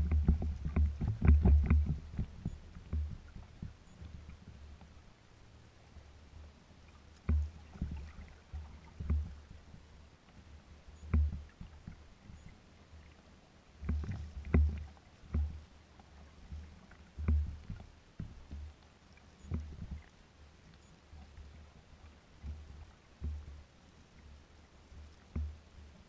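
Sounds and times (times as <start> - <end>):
waves slapping boat hull: 0.0 - 26.0.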